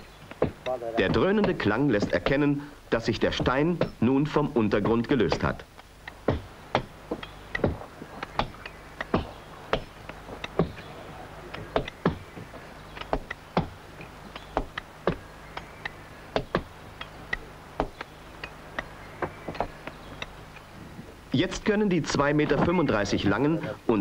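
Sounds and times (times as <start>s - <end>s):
hammers striking iron wedges: 0.3s - 10.8s.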